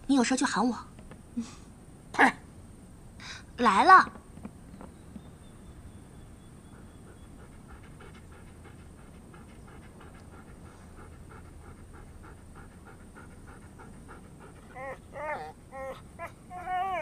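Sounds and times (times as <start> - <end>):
low steady hum: 0.0 - 17.0
rapid panting: 6.2 - 16.3.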